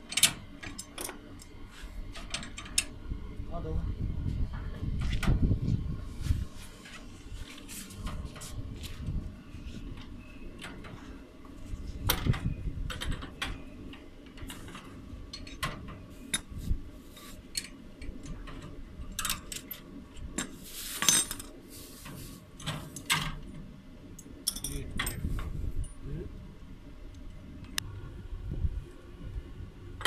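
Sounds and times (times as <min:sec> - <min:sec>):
metal tool clinks and clatter: 0:24.5 - 0:25.2.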